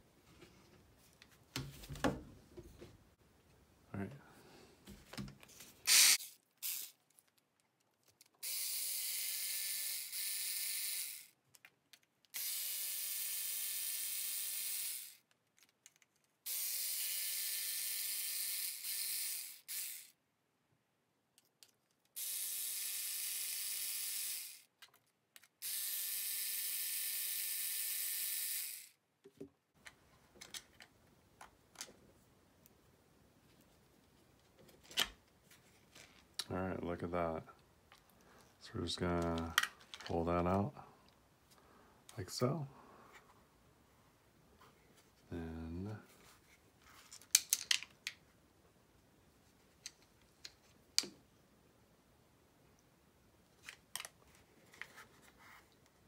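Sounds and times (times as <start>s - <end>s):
small screws clicking: 5.9s - 7.4s, 8.0s - 20.2s
electric screwdriver motor whine: 25.6s - 28.9s.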